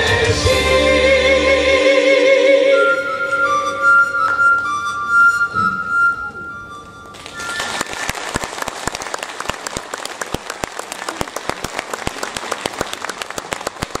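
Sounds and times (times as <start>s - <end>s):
audience applause: 7.2s - 14.0s.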